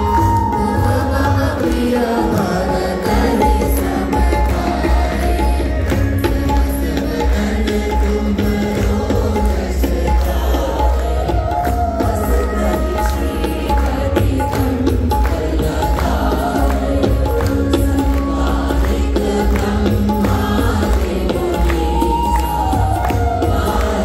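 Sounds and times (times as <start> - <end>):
audience clapping along: 0.0 - 24.0
devotional song over speakers: 0.0 - 24.0
percussion heavy beat: 0.0 - 24.0.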